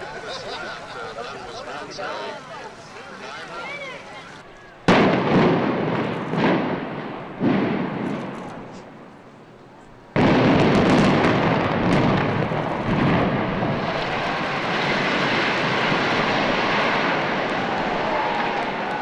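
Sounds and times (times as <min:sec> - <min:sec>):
explosive cracks: 0:04.9 - 0:09.3, 0:10.2 - 0:19.0
building collapsing rumble: 0:10.2 - 0:19.0
demolition charges blasting: 0:10.2 - 0:19.0.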